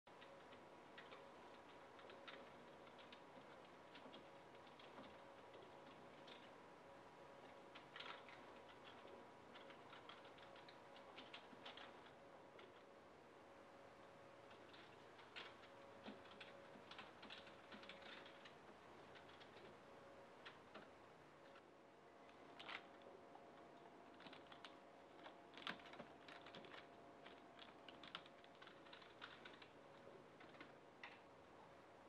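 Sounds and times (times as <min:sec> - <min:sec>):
typing on computer keyboard: 0:00.1 - 0:06.6, 0:07.4 - 0:12.9, 0:14.4 - 0:19.8, 0:24.1 - 0:31.2
faint steady hum: 0:00.1 - 0:32.0.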